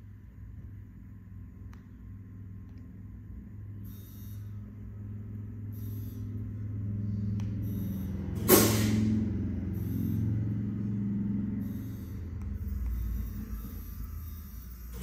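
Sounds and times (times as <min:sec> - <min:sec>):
motor humming: 0:02.6 - 0:15.0
loud burst of hissing air: 0:08.5 - 0:09.1.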